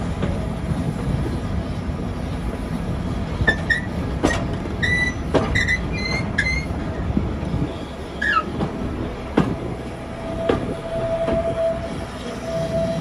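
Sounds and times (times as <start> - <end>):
railway carriage rumbling: 0.0 - 13.0
wheel squeals: 3.4 - 7.0, 7.7 - 8.6.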